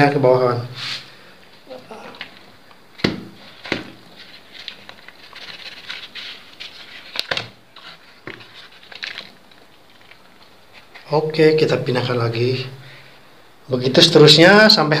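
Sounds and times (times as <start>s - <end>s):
paper egg tray rustling: 3.4s - 12.1s.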